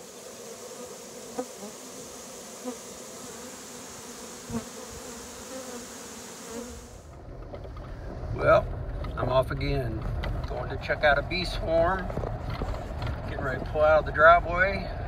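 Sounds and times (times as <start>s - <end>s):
honey bees buzzing: 0.0s - 7.4s
low rumble inside moving truck: 7.1s - 15.0s.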